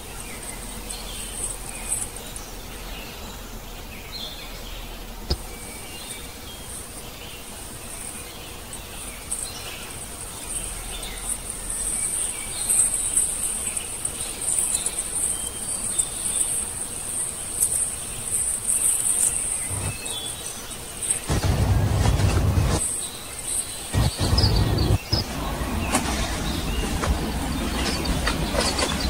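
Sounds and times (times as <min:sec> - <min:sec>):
insects chirring: 0:00.0 - 0:29.0
bird chirps: 0:08.2 - 0:29.0.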